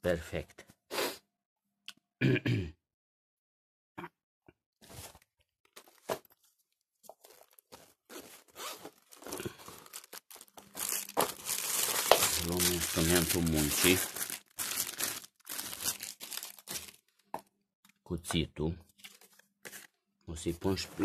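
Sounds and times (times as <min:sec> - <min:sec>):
fabric and plastic rustling: 0:04.8 - 0:17.2.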